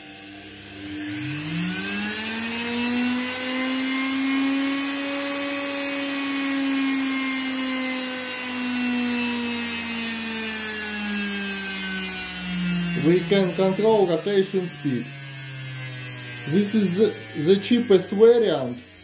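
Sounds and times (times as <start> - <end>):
electric motor whine: 0.0 - 19.0.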